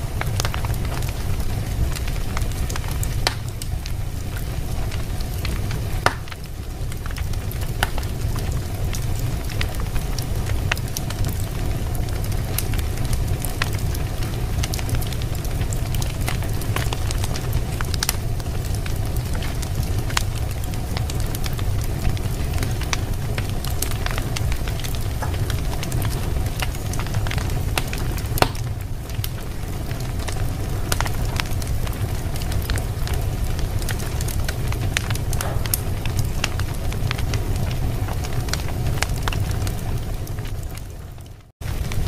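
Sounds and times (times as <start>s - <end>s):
low rumble: 0.0s - 40.8s
fire popping and snapping: 0.0s - 42.0s
wood fire crackling: 0.0s - 42.0s.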